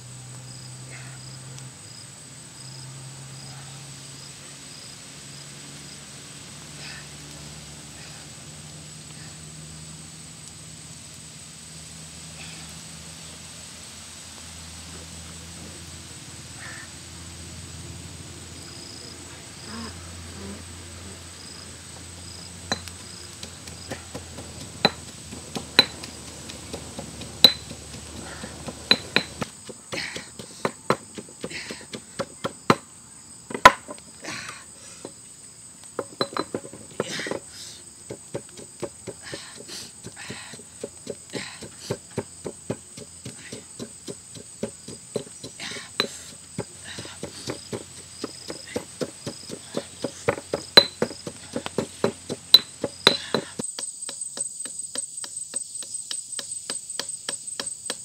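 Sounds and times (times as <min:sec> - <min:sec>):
high insect drone: 0:00.0 - 0:58.0
pestle pounding in stone mortar: 0:22.7 - 0:32.8, 0:36.0 - 0:37.5, 0:38.1 - 0:58.0.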